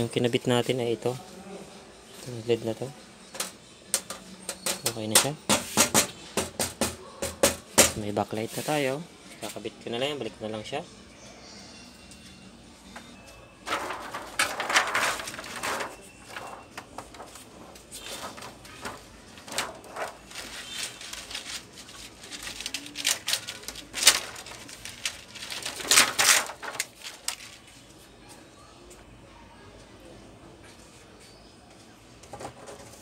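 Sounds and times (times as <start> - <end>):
plastic sheet crinkling: 13.7 - 27.8.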